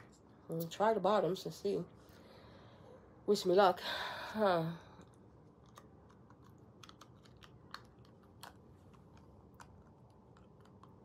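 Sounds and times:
plastic veneer clicking on teeth: 5.6s - 11.0s.

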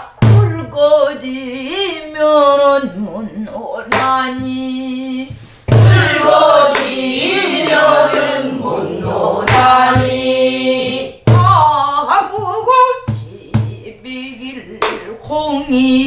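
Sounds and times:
voices singing folk song with vibrato: 0.0s - 13.6s
barrel drum struck with stick: 5.7s - 10.3s, 11.2s - 11.6s.

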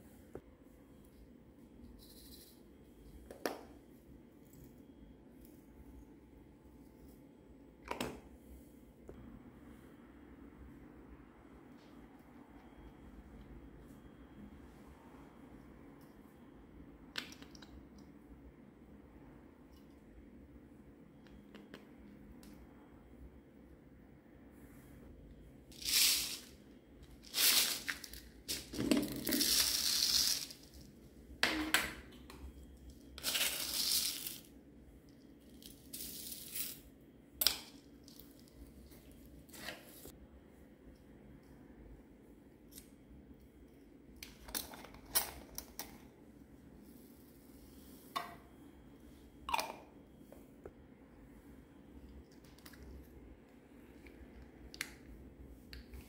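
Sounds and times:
beads rustling and pouring: 25.7s - 26.6s, 27.2s - 30.9s, 33.2s - 34.5s, 35.5s - 36.8s.

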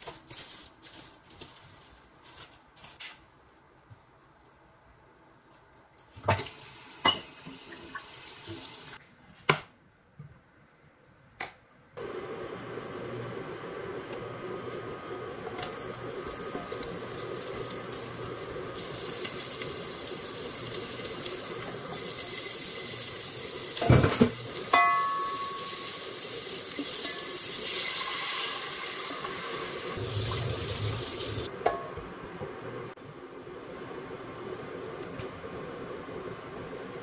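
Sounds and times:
water heating in a pot hissing: 6.4s - 9.0s, 12.0s - 31.5s.

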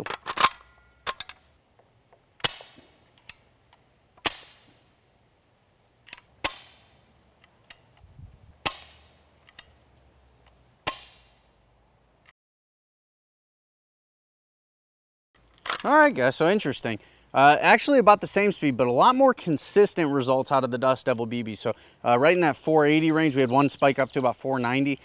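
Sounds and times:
bb rifle shots: 6.2s - 7.0s, 8.6s - 9.7s.

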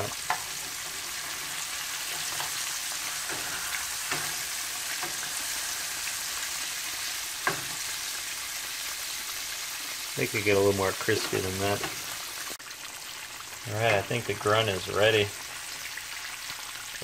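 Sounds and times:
fish deep-frying in oil: 0.0s - 17.0s.

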